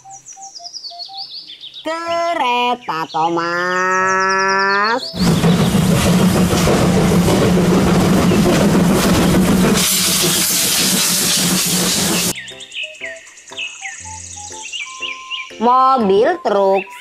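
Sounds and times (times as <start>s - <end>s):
steam locomotive hissing: 5.2s - 12.4s.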